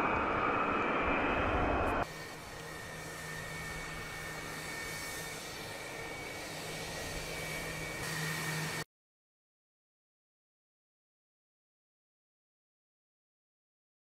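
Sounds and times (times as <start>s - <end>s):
jet engines idling whine: 0.0s - 8.9s.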